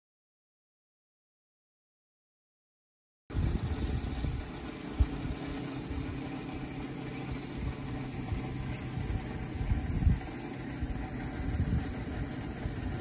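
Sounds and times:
wind buffeting microphone: 3.3s - 13.0s.

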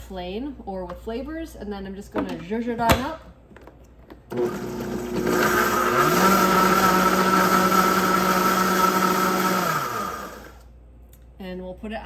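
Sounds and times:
blender motor running: 4.3s - 10.7s.

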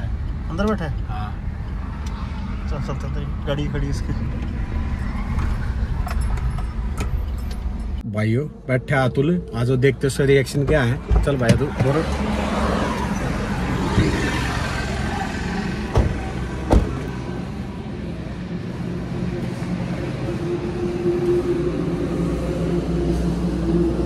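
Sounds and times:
road traffic rumble: 0.0s - 24.0s
car doors shutting: 15.9s - 17.2s.

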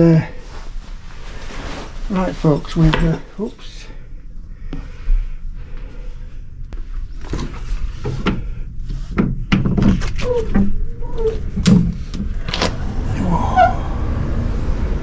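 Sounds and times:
sliding glass door opening: 9.9s - 15.0s.

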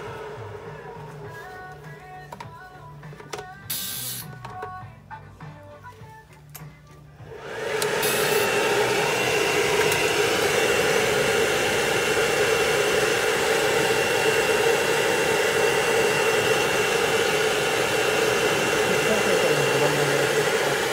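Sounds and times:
hair dryer blowing air: 0.0s - 2.2s, 3.7s - 4.4s, 7.2s - 20.9s.

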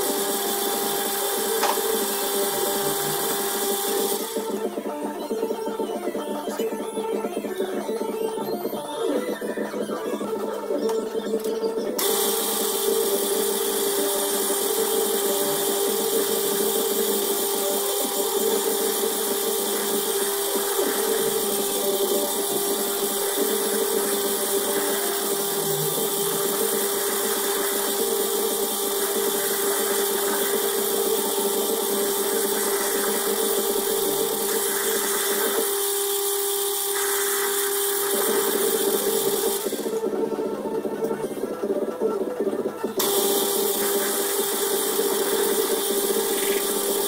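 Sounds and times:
cutting tool hiss: 0.0s - 5.0s, 11.9s - 40.1s, 42.8s - 47.0s
metal lathe motor hum: 0.0s - 5.0s, 12.0s - 40.1s, 42.9s - 47.0s.

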